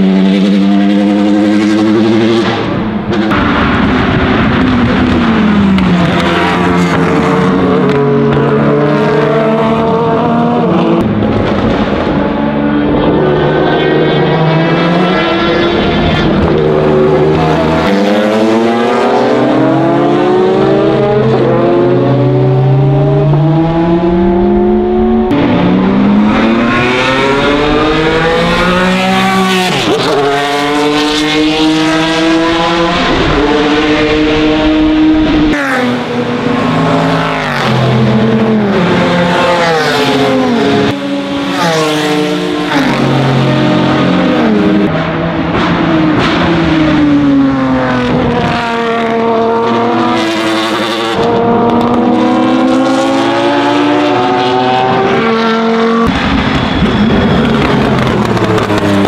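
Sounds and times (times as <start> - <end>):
racing cars passing: 0.0 - 59.0
racing engine revving: 0.0 - 59.0.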